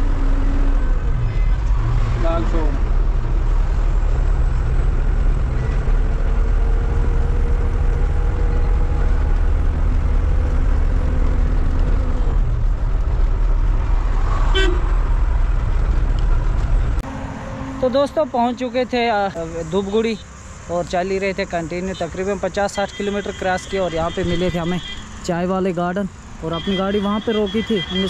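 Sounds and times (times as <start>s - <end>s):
road noise: 0.0s - 28.0s
truck engine rumble: 0.0s - 28.0s
horn toot: 14.4s - 14.9s.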